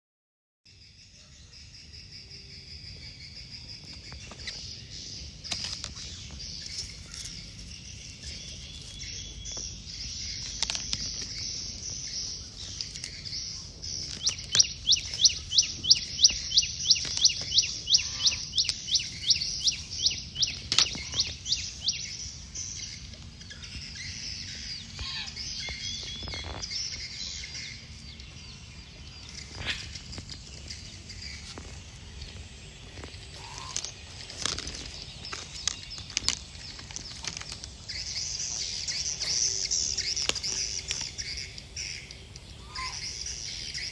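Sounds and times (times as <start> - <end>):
birds chirping: 0.7 - 43.9
insects shrilling: 31.6 - 43.8.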